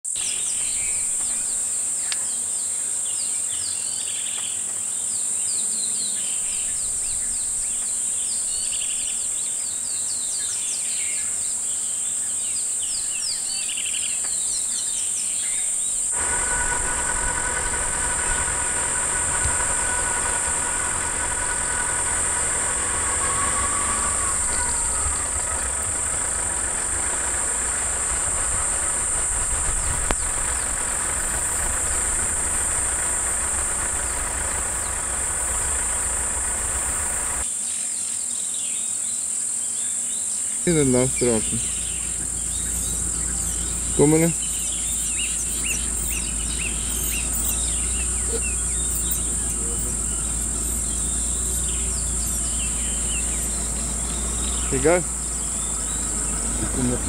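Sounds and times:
high insect buzz: 0.0s - 57.0s
high chirping calls: 15.5s - 37.4s, 40.7s - 57.0s
vehicle engine idling: 15.9s - 37.4s, 40.7s - 57.0s.

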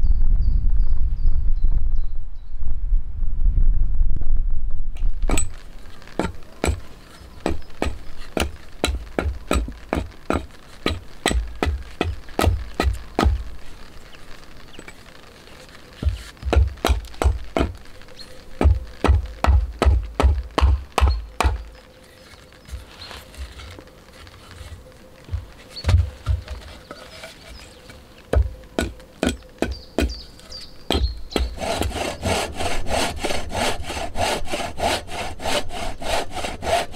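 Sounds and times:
hatchet chopping wood: 5.3s - 5.6s, 6.2s - 13.6s, 16.0s - 17.8s, 18.6s - 21.7s, 27.8s - 30.2s, 30.9s - 36.9s
dull thuds on chopping stump: 6.2s - 13.5s, 16.0s - 17.8s, 18.6s - 21.7s, 28.3s - 30.2s.

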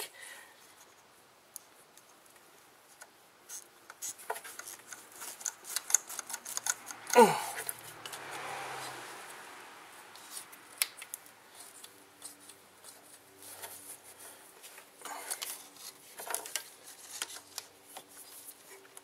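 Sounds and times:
plastic parts clicking and rattling: 3.9s - 8.2s, 11.8s - 18.2s.

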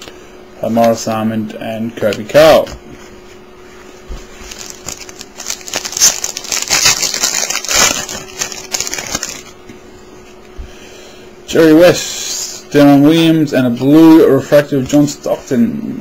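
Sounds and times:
wrapper crinkling: 4.3s - 9.6s.

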